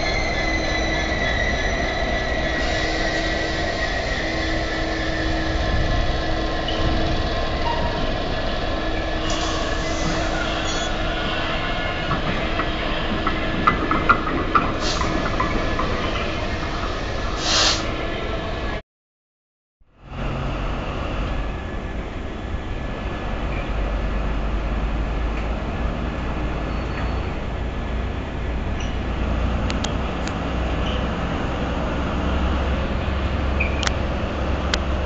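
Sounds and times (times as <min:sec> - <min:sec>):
diesel locomotive engine drone: 0:00.0 - 0:18.8, 0:19.8 - 0:35.0
short hiss: 0:17.4 - 0:17.9.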